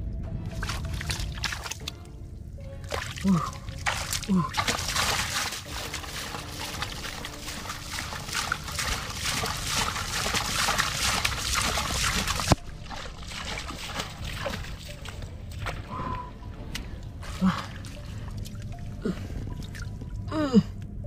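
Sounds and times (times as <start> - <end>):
hands squelching in wet mud: 0.5 - 2.1, 2.8 - 16.0.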